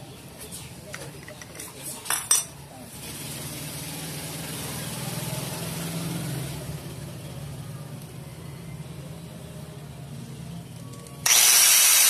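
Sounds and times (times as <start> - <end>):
angle grinder running: 11.2 - 12.0.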